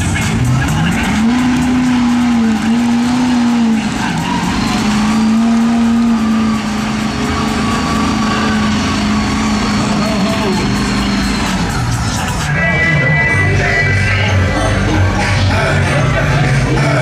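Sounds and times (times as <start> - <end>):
truck engine revving: 0.0 - 17.0.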